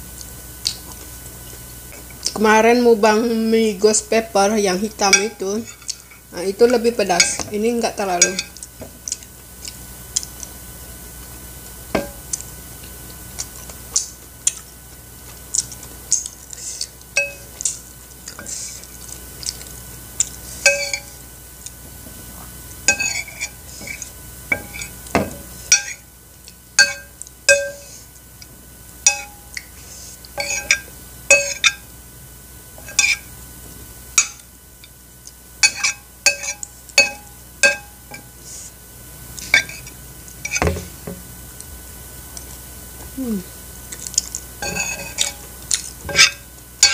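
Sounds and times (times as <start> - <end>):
metal spoon clinking on plate: 20.7 - 21.1, 22.9 - 23.4, 26.8 - 27.9, 30.4 - 31.8, 35.6 - 38.2, 44.6 - 45.4.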